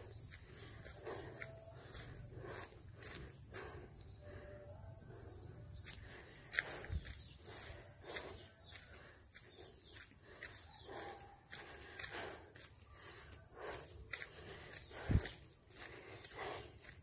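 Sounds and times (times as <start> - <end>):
insects buzzing: 0.0 - 17.0
footsteps crunching on dirt: 5.8 - 17.0.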